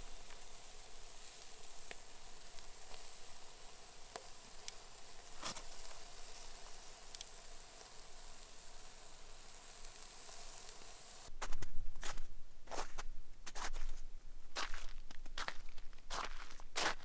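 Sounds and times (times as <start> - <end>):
ribs sizzling on grill: 0.0 - 11.3
footsteps crunching in snow: 11.4 - 14.0, 14.6 - 17.0.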